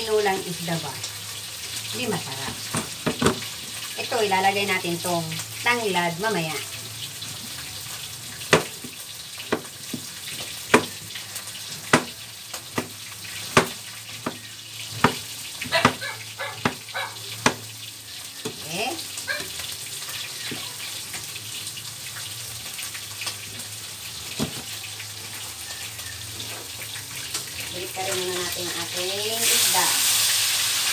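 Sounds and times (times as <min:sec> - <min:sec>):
fish frying in oil: 0:00.0 - 0:30.9
knife chopping on cutting board: 0:10.7 - 0:10.9, 0:11.9 - 0:12.2, 0:13.5 - 0:14.4, 0:15.0 - 0:16.0, 0:16.6 - 0:16.8.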